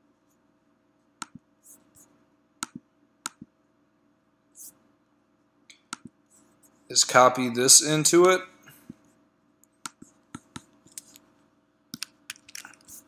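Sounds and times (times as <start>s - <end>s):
computer mouse and keyboard clicks: 11.9s - 13.0s.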